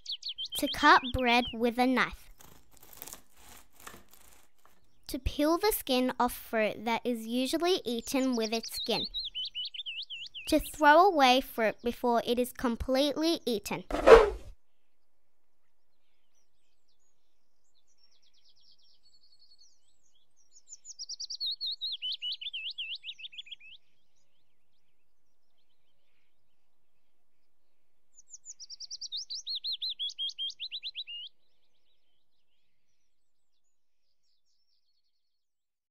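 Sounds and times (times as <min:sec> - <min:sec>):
songbird singing trills: 0:00.0 - 0:02.5, 0:07.3 - 0:10.8, 0:15.8 - 0:26.5, 0:28.2 - 0:35.2.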